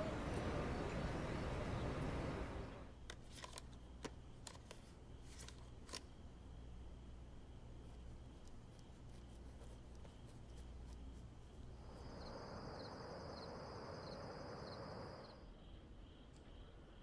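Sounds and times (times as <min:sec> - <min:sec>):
soft rush of noise: 0:00.0 - 0:03.0, 0:07.3 - 0:15.6
low steady hum: 0:00.0 - 0:17.0.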